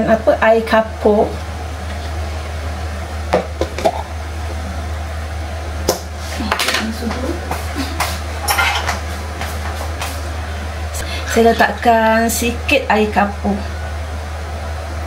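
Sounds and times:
steady low hum: 0.0 - 15.0
utensils clinking and knocking: 8.4 - 9.0.

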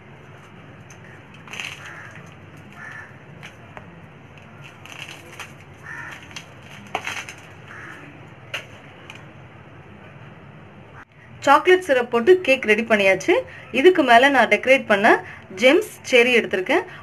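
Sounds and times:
steady low hum: 0.0 - 11.5.

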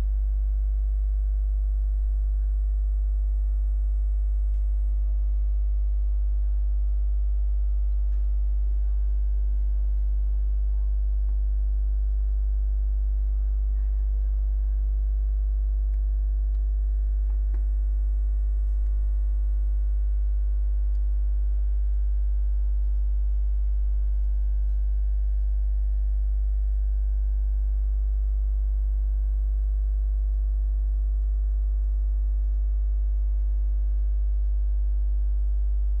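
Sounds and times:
low electrical mains hum: 0.0 - 36.0.

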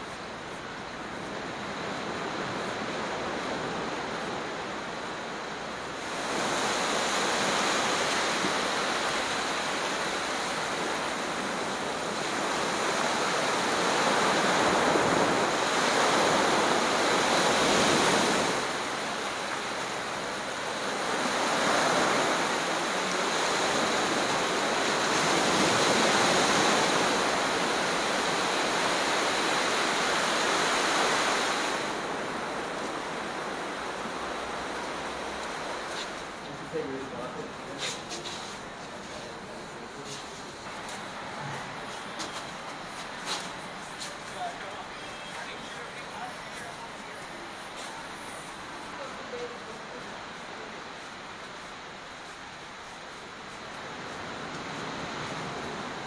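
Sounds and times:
surf breaking on beach: 1.4 - 38.3.

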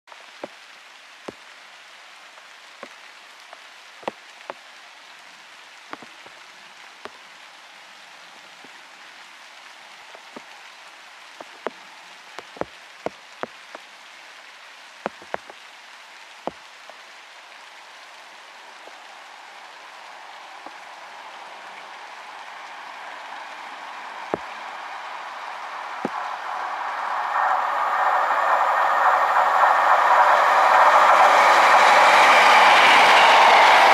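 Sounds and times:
steady rain: 0.0 - 33.9
raindrops tapping close by: 0.1 - 27.2
distant train rushing: 18.7 - 33.9.

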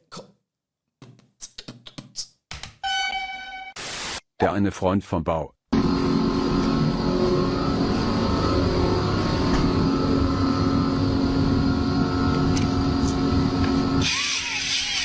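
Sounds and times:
cordless drill motor running: 14.0 - 15.0.

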